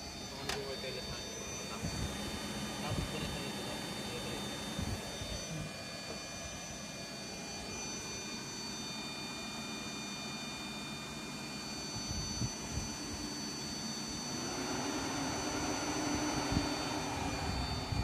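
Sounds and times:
blower fan rushing with whine: 0.0 - 18.0.

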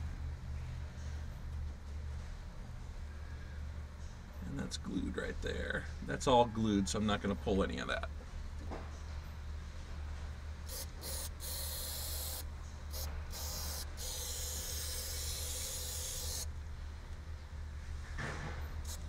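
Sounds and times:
aerosol can spraying: 10.7 - 16.5.

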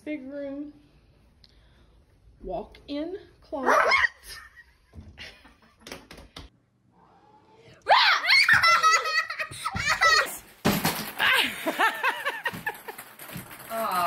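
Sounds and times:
child laughing and squealing: 7.9 - 10.4.

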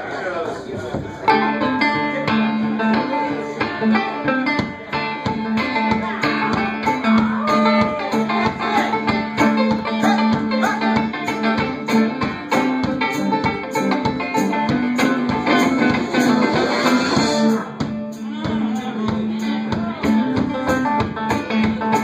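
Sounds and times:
banjo picking: 0.6 - 22.0
electric guitar picking: 1.0 - 22.0
harmonica bending notes: 1.3 - 22.0.

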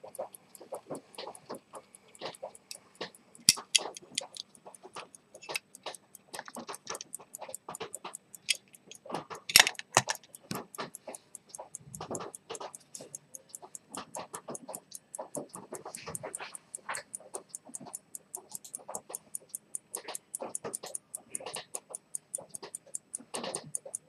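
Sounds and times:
pocket watch ticking fast: 0.0 - 24.0
fingers clicking on metal case: 0.1 - 24.0.

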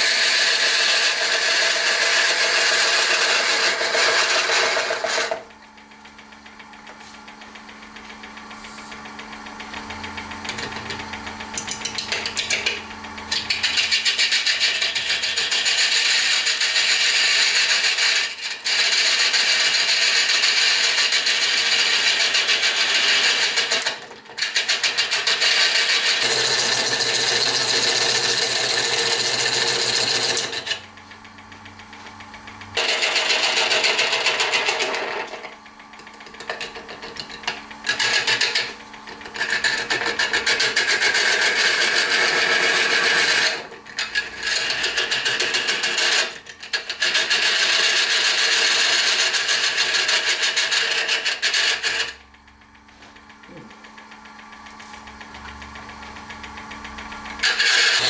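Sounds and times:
lathe gouge scraping wood: 0.0 - 5.5, 11.8 - 30.8, 32.8 - 35.6, 36.3 - 52.2, 57.4 - 58.0
motor hum: 0.0 - 58.0.

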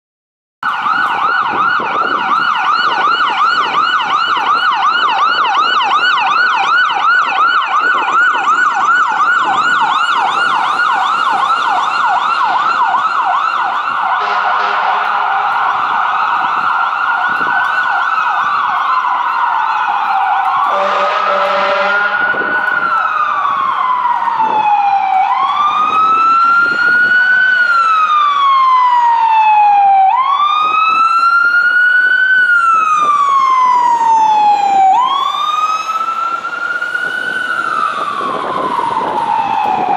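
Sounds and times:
siren wailing: 0.6 - 39.9
siren yelping: 0.6 - 39.9
air horn blasts: 14.2 - 15.4, 20.7 - 22.4.

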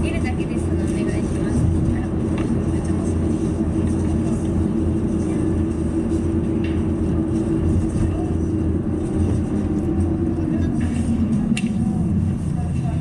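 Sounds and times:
car interior road noise: 0.0 - 13.0.

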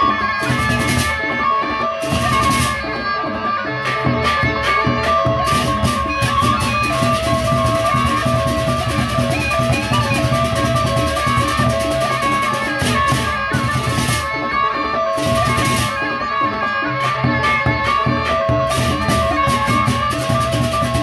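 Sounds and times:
barrel drums beating: 4.0 - 14.4, 17.3 - 21.0.

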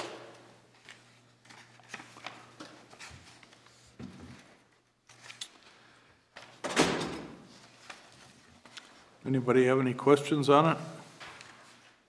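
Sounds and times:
paper rustling: 0.7 - 5.8.

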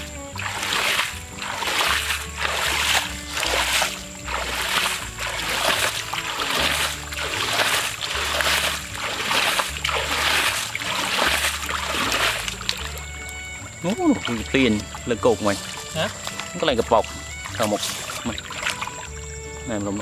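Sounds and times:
background music with bass line: 0.0 - 20.0
hands splashing in muddy water: 0.0 - 20.0.

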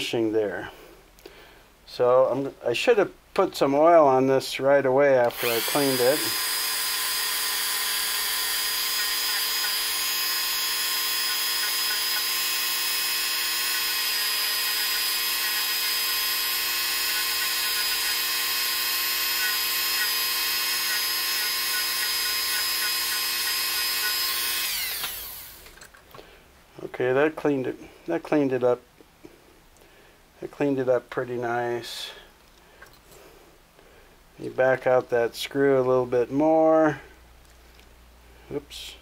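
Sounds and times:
rotary tool whining: 5.2 - 26.0.

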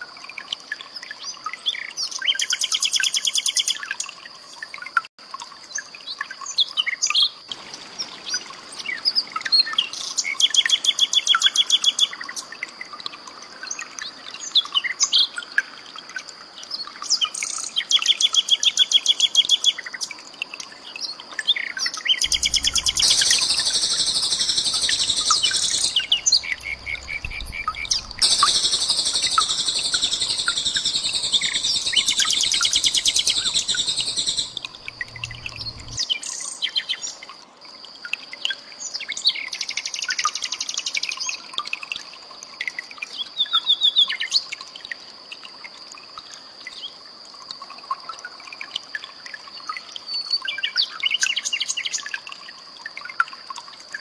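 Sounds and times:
nightingale singing: 21.6 - 37.1.

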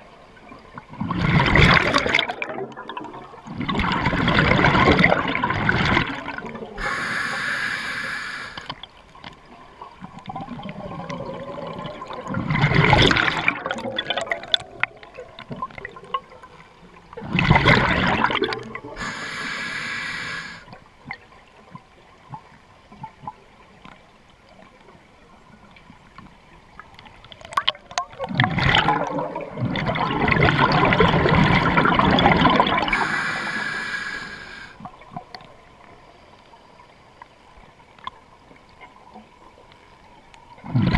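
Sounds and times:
exhaled bubbles gurgling: 0.0 - 23.6, 27.2 - 35.7, 40.5 - 40.9
hissing regulator inhalations: 6.8 - 8.7, 19.0 - 20.7, 32.9 - 34.8.

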